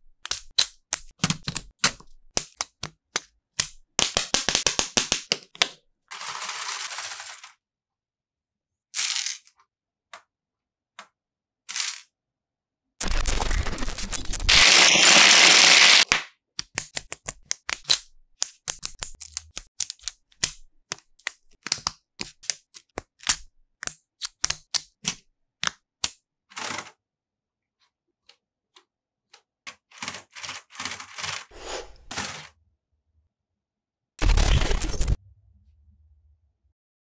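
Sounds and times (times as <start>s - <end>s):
plastic parts clicking together: 16.6s - 26.8s.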